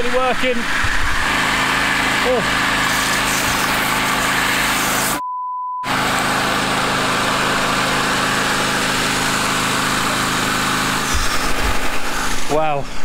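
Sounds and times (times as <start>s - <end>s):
generator running: 0.0s - 5.2s, 5.8s - 13.0s
water pump running: 0.0s - 5.2s, 5.8s - 13.0s
water spraying: 0.0s - 5.2s, 5.9s - 13.0s
censor bleep: 5.2s - 5.9s.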